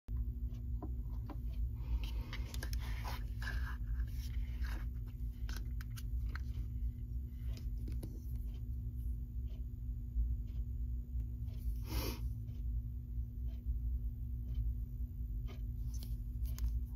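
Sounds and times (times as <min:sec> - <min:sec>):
steady low hum: 0:00.1 - 0:16.9.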